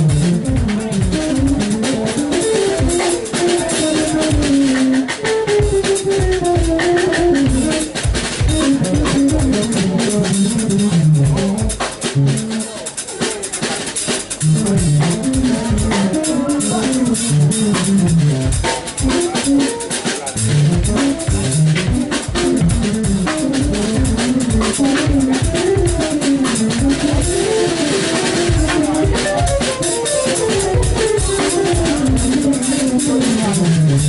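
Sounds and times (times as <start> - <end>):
keytar melody: 0.0 - 12.8, 14.3 - 34.0
drum kit playing: 0.0 - 34.0.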